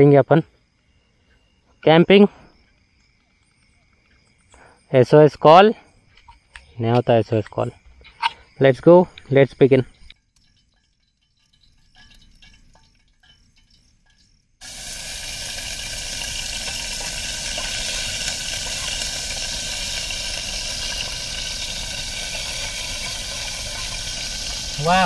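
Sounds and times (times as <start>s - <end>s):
food sizzling in hot oil: 10.2s - 25.0s.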